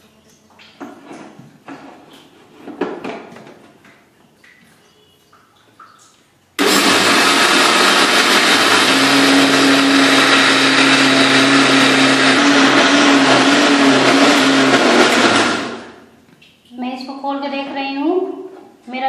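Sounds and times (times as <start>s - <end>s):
mixer grinder humming: 6.6s - 16.0s.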